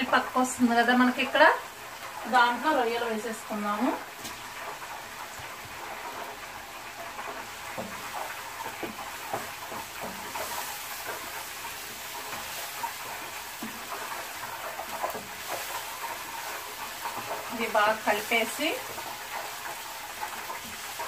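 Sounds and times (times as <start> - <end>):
prawns sizzling in oil: 0.0 - 21.0
spoon scraping a pan: 7.3 - 21.0.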